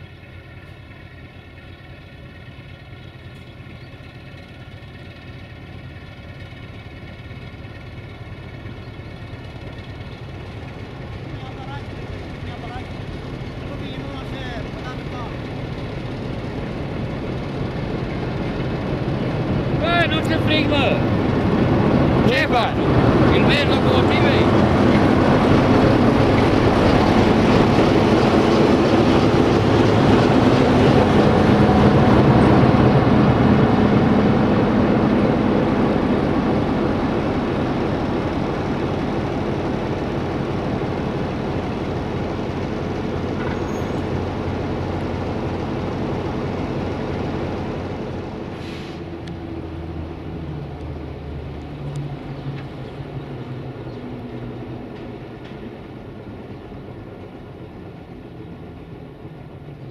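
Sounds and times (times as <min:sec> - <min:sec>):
locomotive diesel engine: 0:00.0 - 0:59.9
brief hiss: 0:48.5 - 0:49.1.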